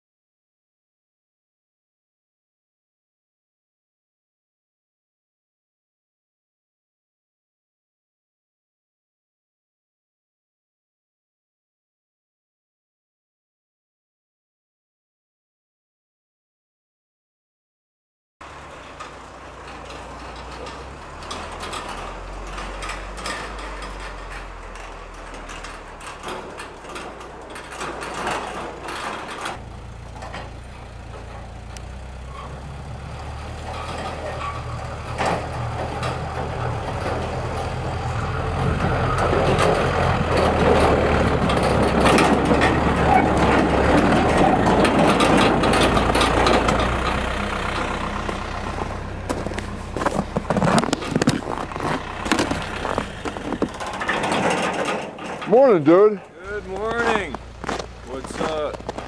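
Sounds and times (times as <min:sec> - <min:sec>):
truck engine running: 0:18.4 - 0:59.0.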